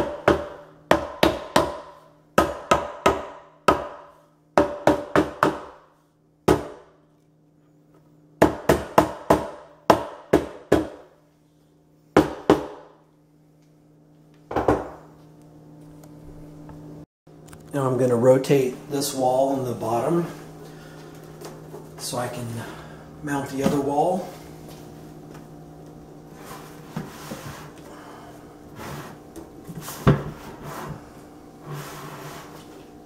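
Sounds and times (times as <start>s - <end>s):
sharp knocks on wooden panel: 0.0s - 4.0s, 4.6s - 5.8s.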